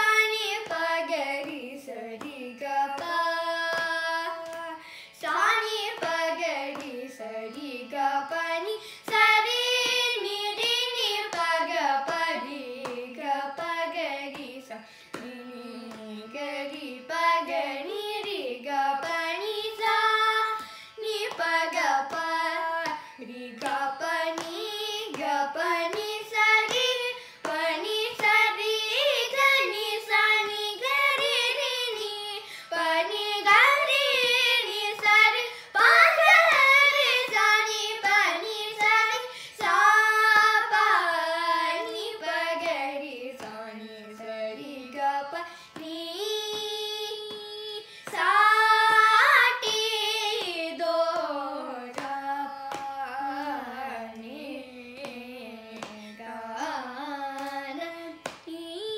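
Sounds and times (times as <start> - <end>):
children singing together: 0.0 - 58.9.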